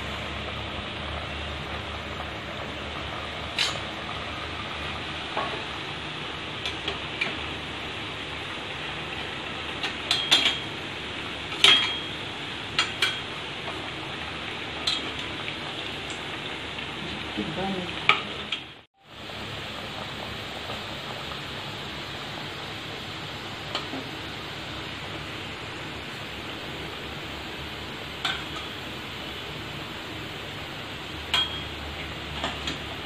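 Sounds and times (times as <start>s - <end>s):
dough deep-frying in oil: 0.0s - 33.0s
metal utensils clinking on pot: 3.6s - 3.8s, 10.1s - 10.7s, 11.6s - 12.1s, 14.8s - 15.2s, 28.2s - 28.7s, 31.3s - 31.8s.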